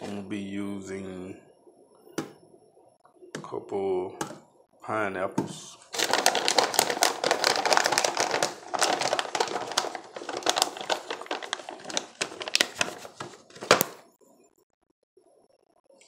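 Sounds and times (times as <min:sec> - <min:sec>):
packaging crinkling: 0:05.9 - 0:14.1.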